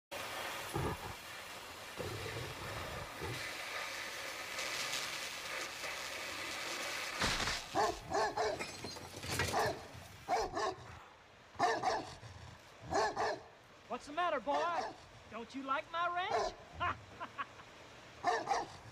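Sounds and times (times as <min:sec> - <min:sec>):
gas welding torch hissing: 0:00.2 - 0:08.2
dog barking: 0:07.8 - 0:08.6, 0:09.5 - 0:11.0, 0:11.6 - 0:12.2, 0:12.8 - 0:13.5, 0:14.7 - 0:15.0, 0:16.3 - 0:16.6, 0:18.2 - 0:18.8.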